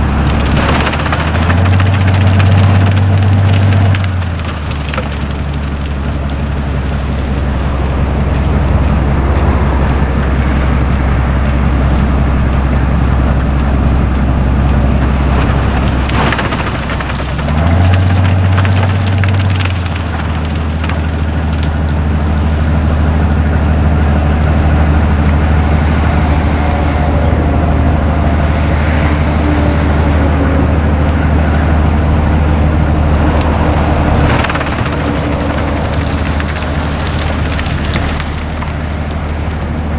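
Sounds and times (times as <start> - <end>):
sharp cracks: 0.0 - 9.0, 14.6 - 22.7, 33.1 - 39.9
diesel engine droning under load: 0.0 - 39.9.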